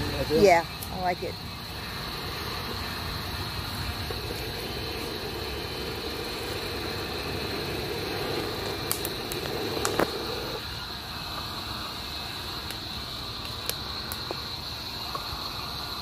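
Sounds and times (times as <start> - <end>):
wood fire roaring: 0.0 - 16.0
fire popping and crackling: 0.7 - 10.7, 12.5 - 15.3.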